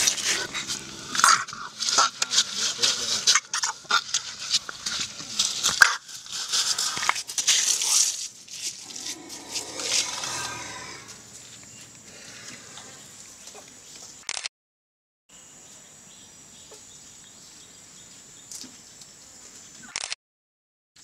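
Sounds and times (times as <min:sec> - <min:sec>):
insects buzzing: 0:00.0 - 0:05.7, 0:08.5 - 0:14.0.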